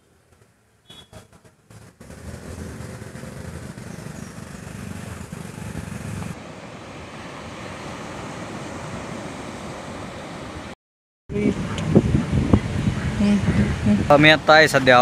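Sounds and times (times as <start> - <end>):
outdoor rumble: 1.3 - 7.9
surf breaking on beach: 6.3 - 10.8.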